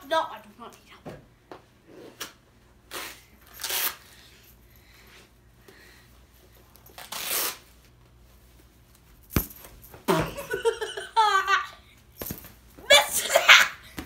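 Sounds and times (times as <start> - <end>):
boy laughing and giggling: 10.1 - 12.0, 12.8 - 14.0.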